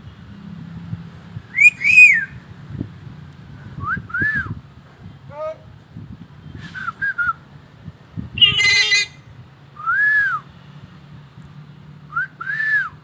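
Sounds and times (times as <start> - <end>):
bird whistles: 1.5 - 2.4, 8.4 - 9.2
loud harsh bird call: 1.6 - 2.3, 8.4 - 9.2.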